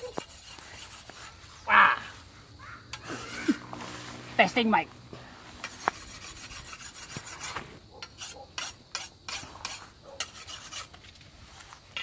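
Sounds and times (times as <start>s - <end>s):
sharp swishes of leaves: 0.7s - 4.5s
corn leaves rustling: 3.1s - 4.5s.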